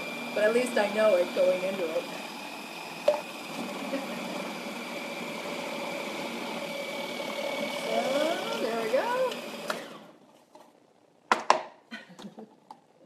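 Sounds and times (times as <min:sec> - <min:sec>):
food processor motor whining: 0:00.0 - 0:10.2.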